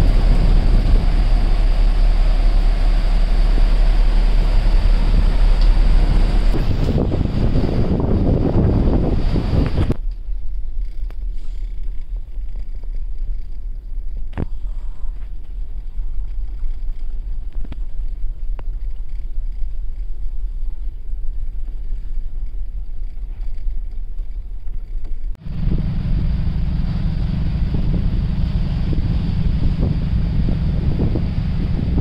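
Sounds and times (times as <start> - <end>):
rough sea rushing: 0.0 - 10.0
muffled rumble: 0.0 - 32.0
wind buffeting microphone: 0.0 - 32.0.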